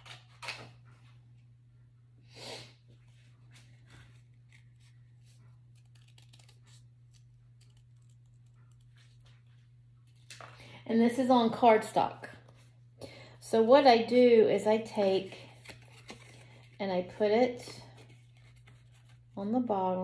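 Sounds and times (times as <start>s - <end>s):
paper rustling: 3.1s - 10.7s, 15.2s - 16.8s, 17.9s - 19.4s.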